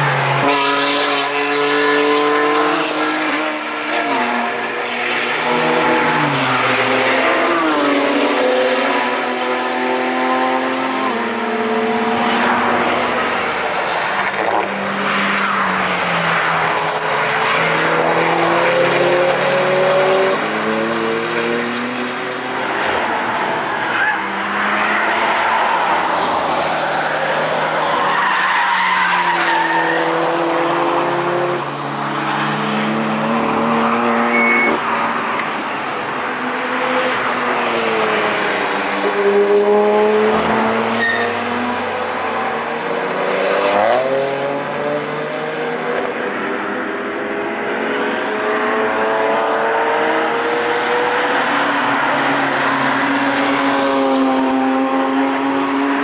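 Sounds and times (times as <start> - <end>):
sports cars passing: 0.0 - 56.0.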